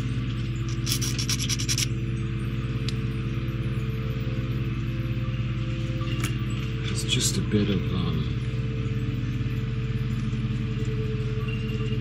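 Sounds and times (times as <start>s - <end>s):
low mechanical hum: 0.0s - 12.0s
file scraping plastic: 0.7s - 1.9s.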